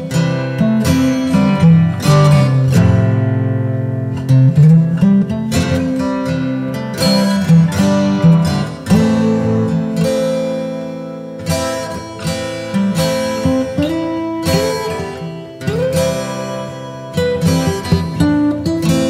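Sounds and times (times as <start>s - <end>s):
acoustic guitar picking and strumming: 0.0s - 19.0s.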